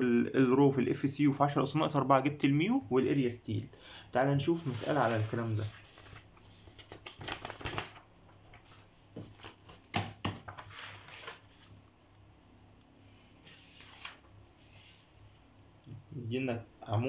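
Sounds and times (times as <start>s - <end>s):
paper rustling and sliding: 4.4s - 11.8s, 13.4s - 15.4s.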